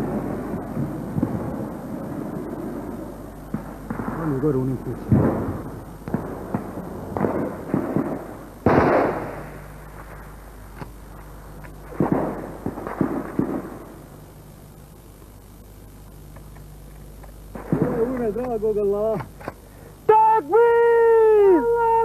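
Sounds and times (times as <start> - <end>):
gunshots echoing: 3.5 - 9.6, 11.9 - 13.8.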